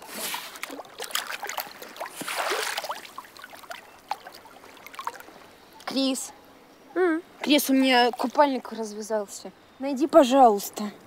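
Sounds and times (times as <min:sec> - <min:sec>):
water splashing and dripping: 0:00.0 - 0:06.0
rush of water: 0:00.0 - 0:06.6.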